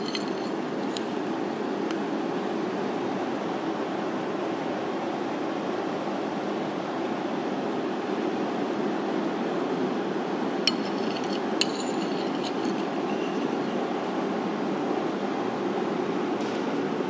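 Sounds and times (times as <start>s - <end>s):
metal spoon clinking on plate: 0.0s - 1.2s, 10.7s - 13.9s.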